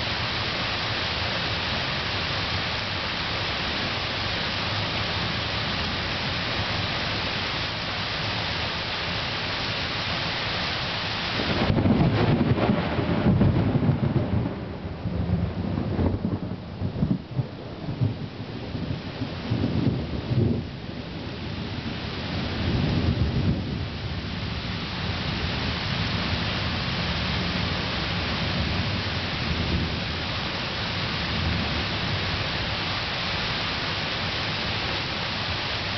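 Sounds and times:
heavy rain pouring: 0.0 - 35.9
low rumble of thunder: 11.3 - 35.9.

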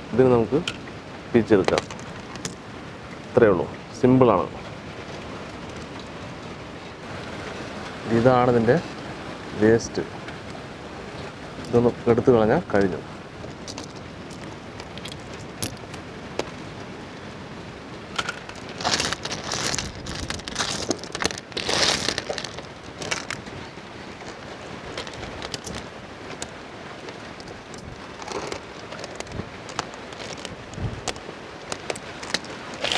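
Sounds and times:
clam shells clicking and clattering: 1.6 - 2.6, 13.5 - 16.5, 18.2 - 23.6, 24.2 - 32.9.

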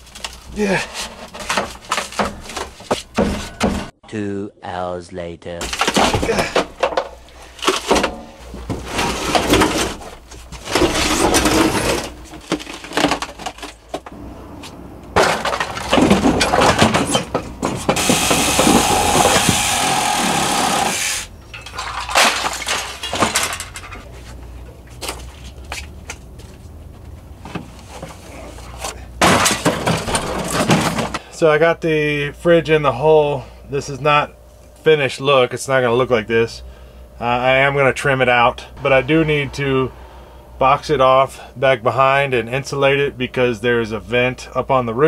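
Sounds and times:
fridge cabinet cracking and scraping: 0.0 - 3.9, 5.6 - 7.0, 7.6 - 14.1, 15.2 - 20.8, 28.9 - 31.2.

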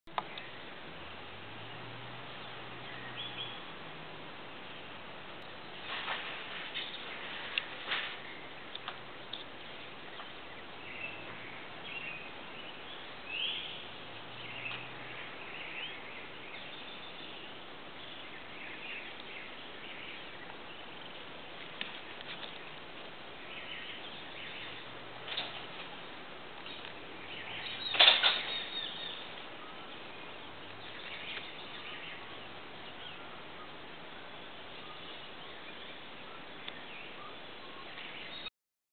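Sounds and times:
steady background hiss: 0.1 - 38.5
bird chirps and calls: 26.6 - 38.5.

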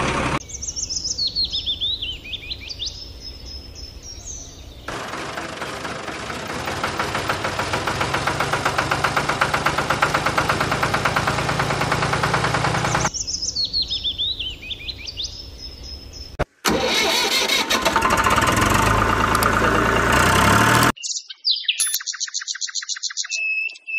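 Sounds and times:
tractor engine running: 0.0 - 0.4, 4.9 - 13.2, 16.4 - 21.0
bird chirps: 0.4 - 4.9, 12.8 - 16.4, 21.0 - 23.9
high bird trill: 21.0 - 23.9.

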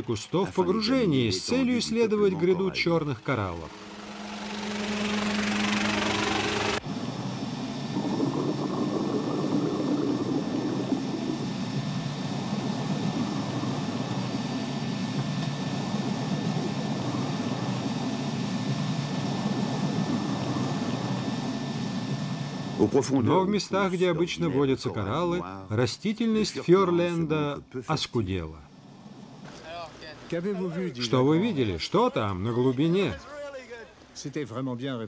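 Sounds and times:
motor humming: 0.7 - 22.9
low rumbling drone: 0.9 - 22.8.

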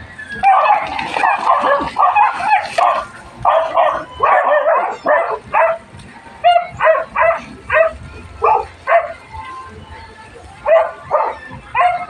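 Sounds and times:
dog barking: 0.4 - 5.8, 6.4 - 9.1, 10.7 - 12.0.

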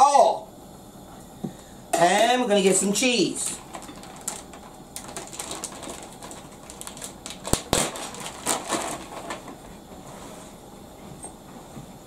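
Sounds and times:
plastic bag crinkling: 3.6 - 9.6.

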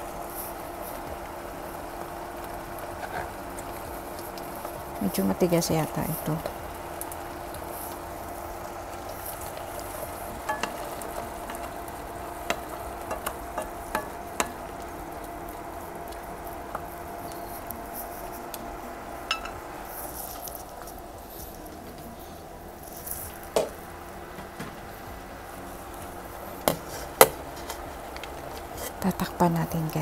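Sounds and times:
sauce sizzling: 0.0 - 30.0
steady hum: 0.0 - 30.0
spatula tapping and scraping pan: 10.5 - 10.8, 12.5 - 14.6.

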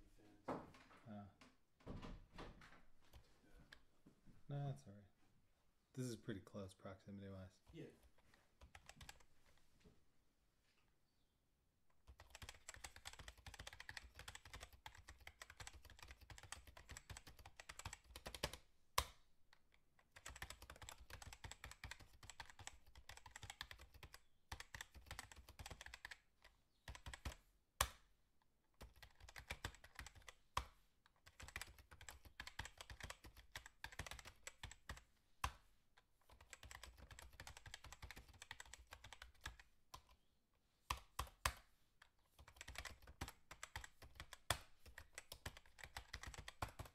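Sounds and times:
typing on computer keyboard: 8.6 - 9.3, 12.0 - 19.2, 20.0 - 27.9, 28.8 - 35.6, 36.2 - 40.2, 40.9 - 41.7, 42.4 - 46.9.

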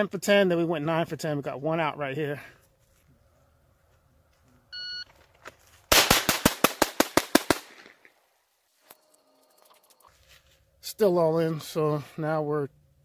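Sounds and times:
rapid pistol shots: 5.9 - 8.0.

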